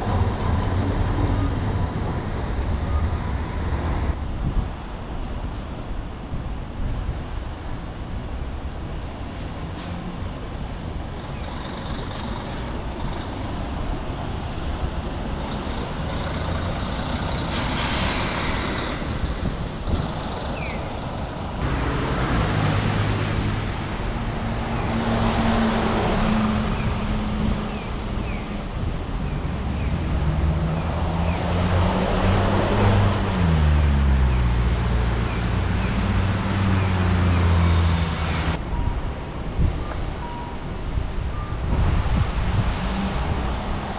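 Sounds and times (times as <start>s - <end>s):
bus diesel engine running: 8.8s - 31.1s
tyre hiss on wet street: 17.4s - 19.2s.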